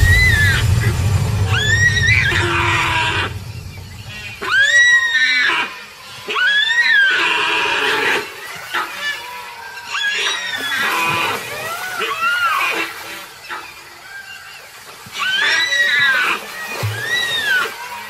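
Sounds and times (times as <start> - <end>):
deer distress cries: 5.1 - 18.0.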